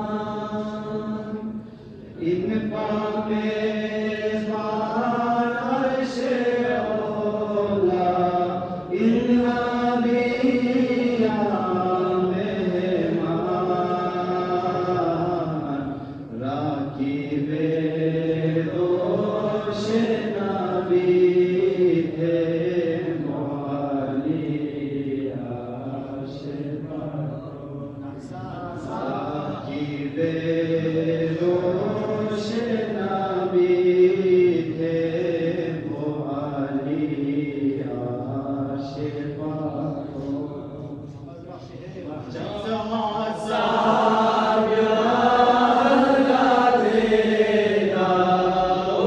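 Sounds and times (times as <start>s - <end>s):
person chanting: 0.0s - 49.0s.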